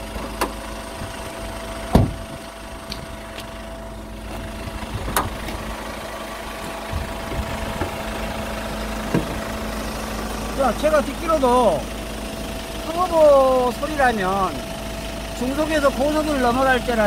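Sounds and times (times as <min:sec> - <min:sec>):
engine idling with whistle: 0:00.0 - 0:17.0.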